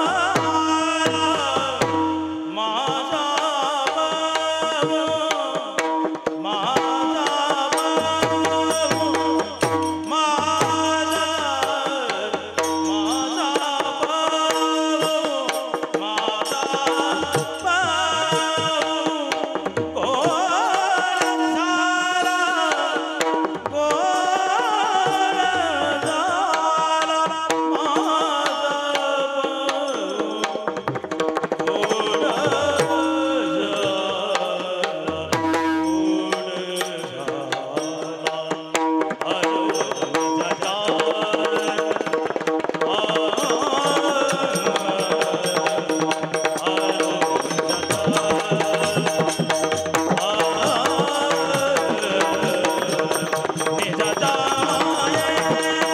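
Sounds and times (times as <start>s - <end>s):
men singing into microphones: 0.0s - 55.9s
brass hand cymbals shimmering: 35.4s - 36.6s.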